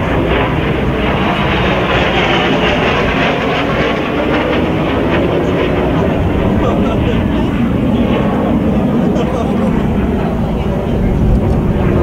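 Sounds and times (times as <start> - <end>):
jet aircraft flying past: 0.0 - 12.0.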